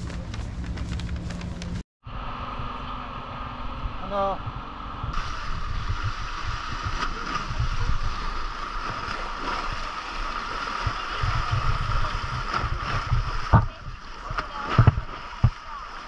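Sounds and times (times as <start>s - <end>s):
wind buffeting microphone: 3.6s - 15.8s
sea surf washing over rocks: 5.2s - 16.0s.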